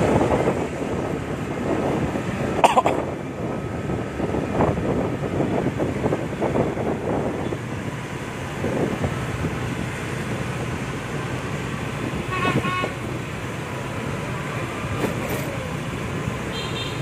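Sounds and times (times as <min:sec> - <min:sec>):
short horn beep: 0:12.3 - 0:13.0.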